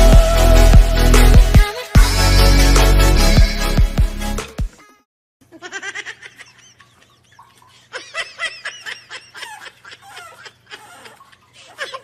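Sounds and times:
electronic intro music: 0.0s - 4.6s
person laughing high-pitched: 5.5s - 12.0s.

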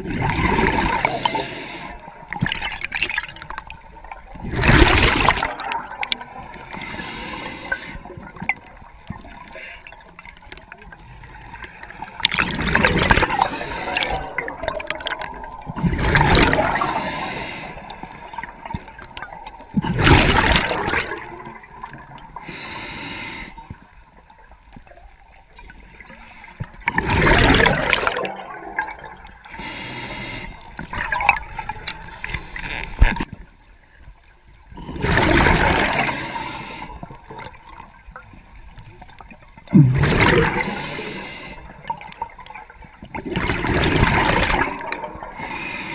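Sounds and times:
exhaled bubbles gurgling: 0.0s - 22.8s, 24.8s - 33.3s, 34.7s - 45.9s
inhalation hiss: 0.9s - 2.0s, 6.3s - 8.1s, 13.2s - 14.3s, 16.7s - 18.5s, 22.4s - 23.7s, 26.1s - 26.7s, 29.5s - 30.7s, 32.1s - 33.1s, 35.8s - 37.0s, 40.5s - 41.7s, 45.3s - 45.9s.

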